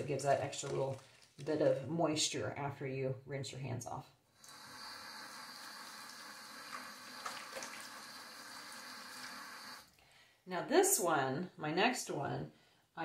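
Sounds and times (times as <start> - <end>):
water running from faucet: 4.4 - 9.9
hands rinsing under water: 5.4 - 9.7.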